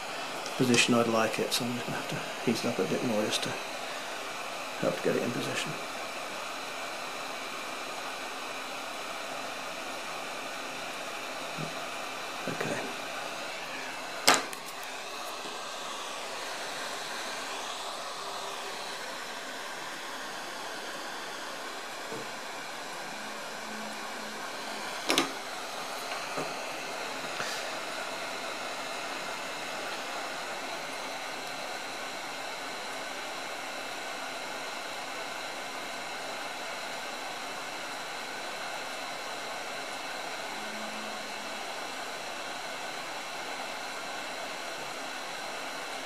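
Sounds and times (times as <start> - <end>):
hot air gun hissing: 24.2 - 32.3.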